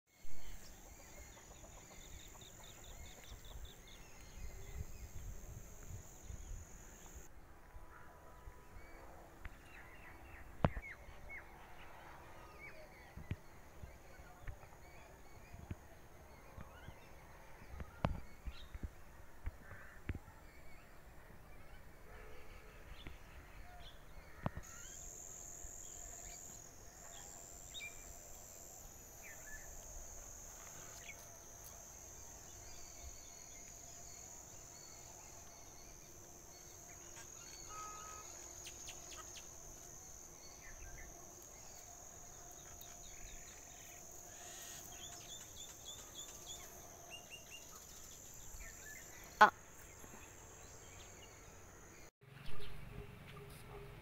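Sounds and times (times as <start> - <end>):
high insect buzz: 24.6 - 52.0.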